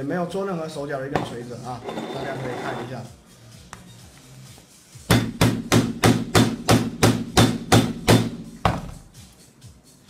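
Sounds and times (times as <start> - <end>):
hammer hitting phone screen: 5.1 - 8.9.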